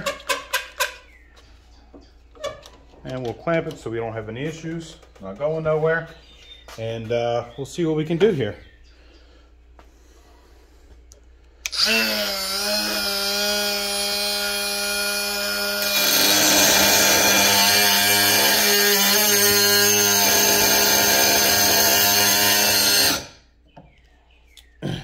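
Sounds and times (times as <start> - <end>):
cutoff wheel grinding steel: 11.6 - 23.5
die grinder motor whine: 11.7 - 23.4.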